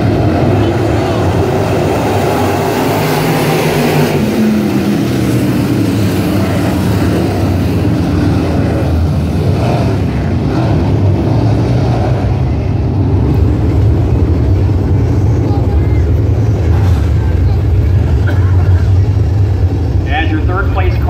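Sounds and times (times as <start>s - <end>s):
race car engines at speed: 0.0s - 21.0s.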